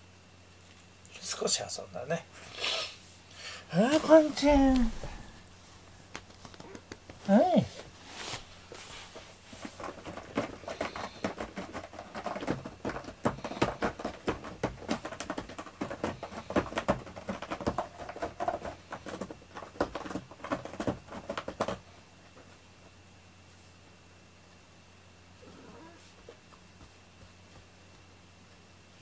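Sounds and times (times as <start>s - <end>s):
cat scratching at bedding: 6.2s - 21.9s.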